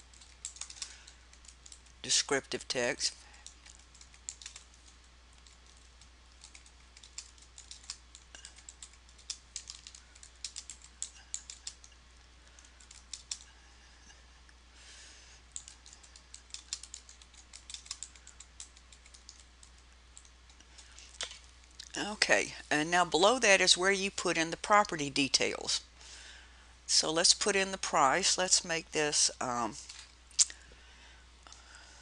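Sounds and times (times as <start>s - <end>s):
computer keyboard typing: 0.0s - 1.9s, 3.4s - 11.9s, 12.6s - 13.5s, 15.5s - 20.4s
faint low hum: 0.0s - 32.0s.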